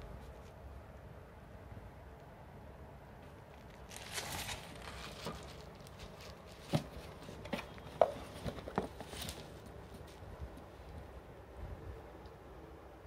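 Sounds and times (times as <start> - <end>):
packaging rustling: 3.6 - 10.2.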